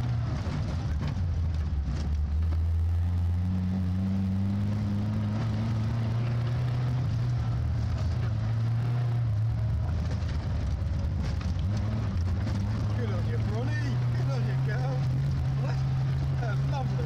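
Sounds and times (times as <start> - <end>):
car engine running hard: 0.0 - 17.0.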